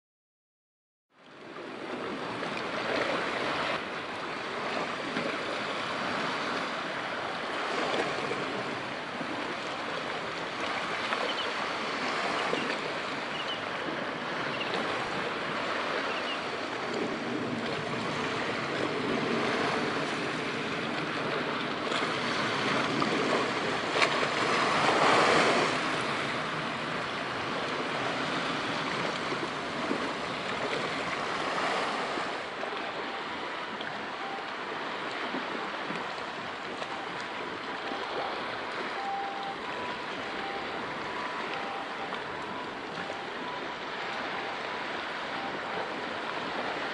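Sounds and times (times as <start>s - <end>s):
sea waves washing: 1.4s - 46.9s.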